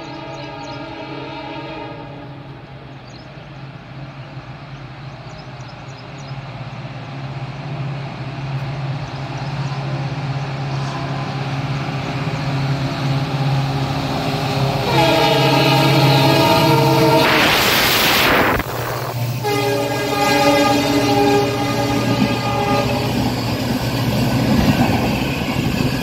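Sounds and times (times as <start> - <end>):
train horn: 0.0 - 2.7, 10.7 - 11.6, 14.4 - 23.4
train wheels rumbling on rails: 0.0 - 26.0.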